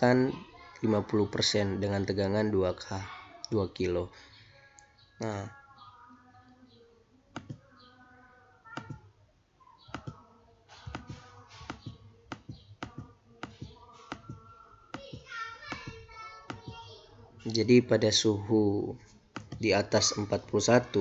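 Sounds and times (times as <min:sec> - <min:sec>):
computer mouse clicking: 0:07.4 - 0:07.6, 0:10.9 - 0:14.4, 0:19.3 - 0:19.6.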